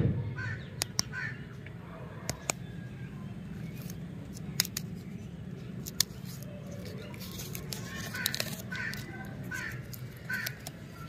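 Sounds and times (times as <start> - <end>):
bird cawing: 0.3 - 1.6, 7.9 - 11.0
candy wrappers crinkling: 3.5 - 11.0.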